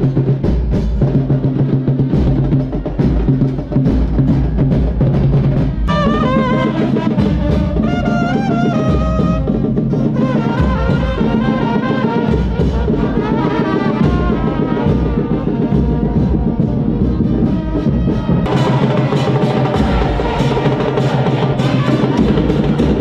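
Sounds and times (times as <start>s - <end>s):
drum beat: 0.0s - 23.0s
trumpets playing melody: 5.8s - 23.0s.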